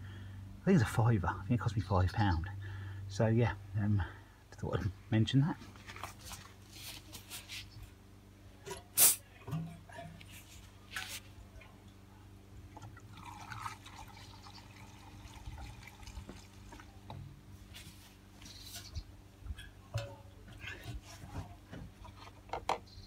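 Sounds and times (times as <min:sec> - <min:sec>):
fuel trickling and glugging: 0:12.7 - 0:17.2.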